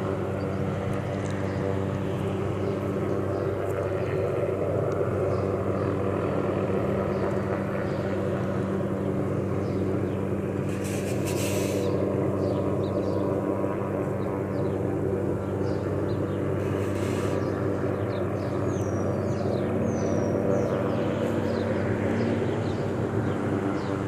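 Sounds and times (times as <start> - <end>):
helicopter hovering: 0.0 - 24.0
brief hiss: 10.7 - 11.9.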